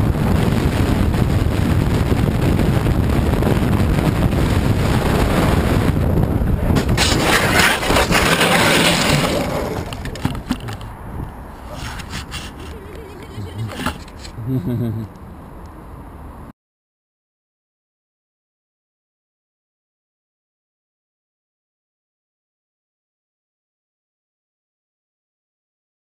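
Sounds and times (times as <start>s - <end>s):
road and engine rumble: 0.0s - 16.5s
harsh hissing scraping noise: 11.5s - 14.4s.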